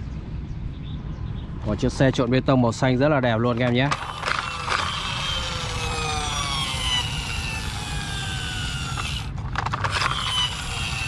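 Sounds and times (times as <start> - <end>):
sharp clicks: 3.6 - 11.0.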